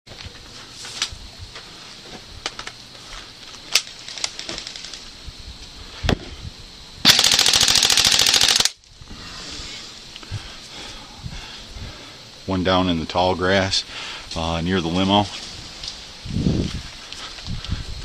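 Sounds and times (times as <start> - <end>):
airsoft rifle full-auto burst: 7.0 - 8.8.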